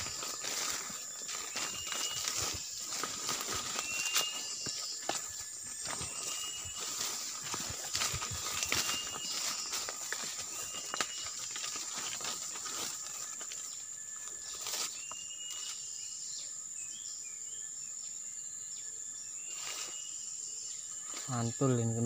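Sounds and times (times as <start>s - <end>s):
rustles in dry undergrowth: 0.0s - 16.1s, 19.4s - 21.7s
high insect buzz: 0.0s - 17.4s
bird chirps: 0.0s - 22.0s
bird whistling: 1.4s - 5.2s, 6.0s - 7.5s.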